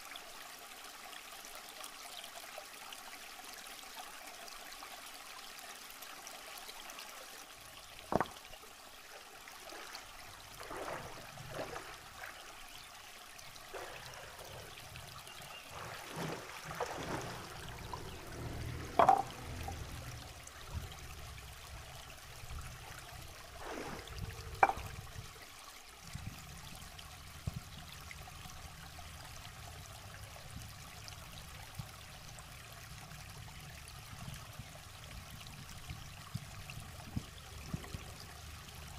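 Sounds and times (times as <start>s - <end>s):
river water trickling over rocks: 0.0s - 38.9s
sharp water splashes: 9.6s - 12.4s, 13.7s - 20.2s, 23.5s - 25.0s.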